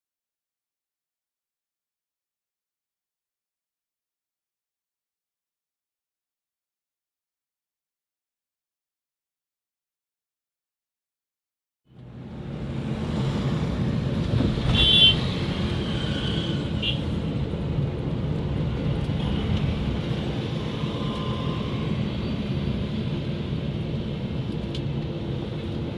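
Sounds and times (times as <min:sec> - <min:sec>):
car road and engine noise: 0:11.9 - 0:25.9.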